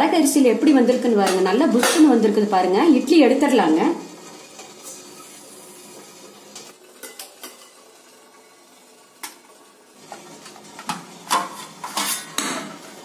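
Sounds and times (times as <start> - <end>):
metal plate clinking on pot: 11.3 - 12.7.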